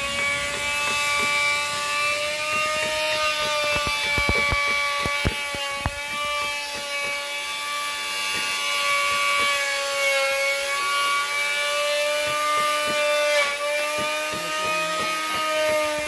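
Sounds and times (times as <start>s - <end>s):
power tool motor whining: 0.0s - 16.0s.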